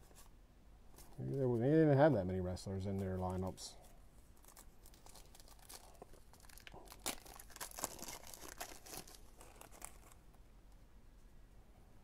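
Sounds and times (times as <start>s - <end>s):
trading cards rustling: 2.8s - 10.2s.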